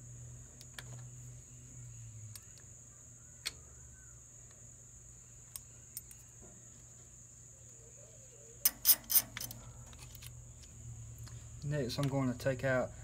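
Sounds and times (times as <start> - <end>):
metal wrench clicks: 8.6 - 9.6.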